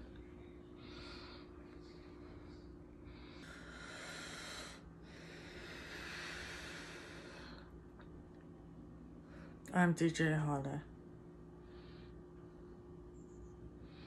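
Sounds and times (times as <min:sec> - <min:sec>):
faint steady hum: 0:00.0 - 0:14.0
person breathing: 0:00.7 - 0:07.7.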